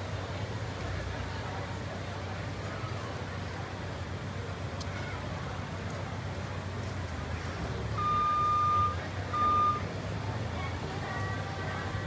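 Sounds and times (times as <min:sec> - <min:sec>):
low engine hum: 0:00.0 - 0:12.0
vehicle reversing alarm beep: 0:07.9 - 0:09.9.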